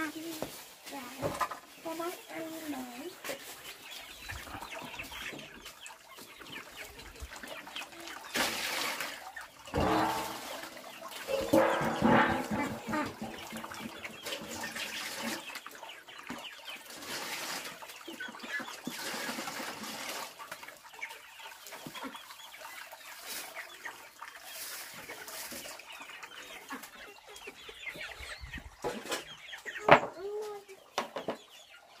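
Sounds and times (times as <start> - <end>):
chickens clucking: 0.0 - 32.0
water sloshing: 4.4 - 20.9
water splashing into steel basin: 7.2 - 15.8.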